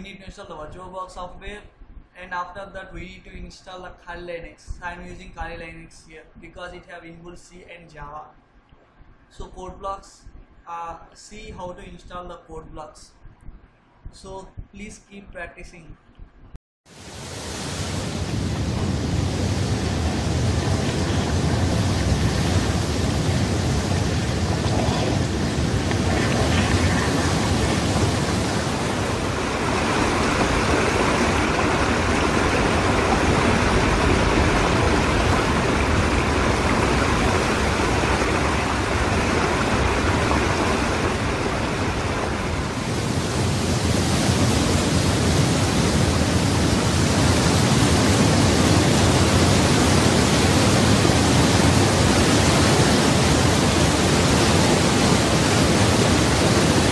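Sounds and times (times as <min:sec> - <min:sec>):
waterfall rushing: 0:16.9 - 0:56.9.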